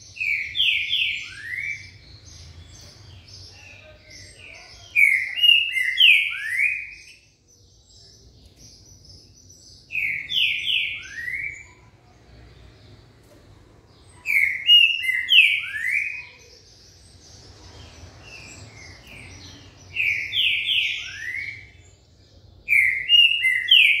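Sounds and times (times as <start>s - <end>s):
bird whistled song phrase: 14.3s - 16.4s.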